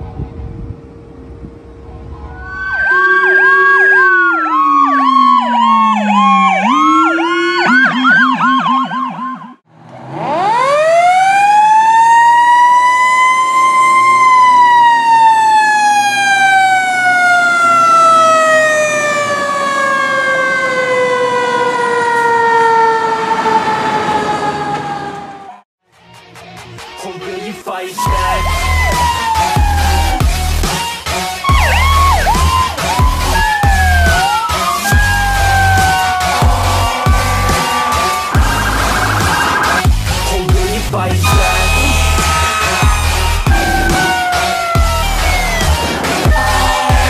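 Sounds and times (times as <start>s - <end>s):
mechanical siren howling: 0.7s - 25.6s, 28.0s - 40.3s, 41.2s - 47.0s
electronic siren yelping: 2.1s - 9.6s, 28.0s - 40.3s, 41.2s - 47.0s.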